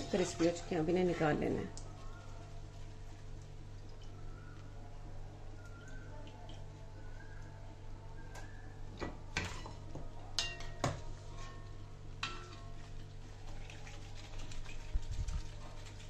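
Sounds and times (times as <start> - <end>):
metal spoon scraping frying pan: 0.0 - 1.2.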